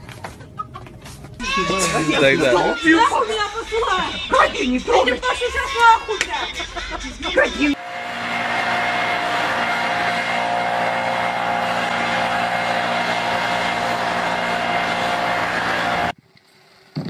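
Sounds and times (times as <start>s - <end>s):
leaf blower running: 1.6s - 3.2s, 7.7s - 16.2s.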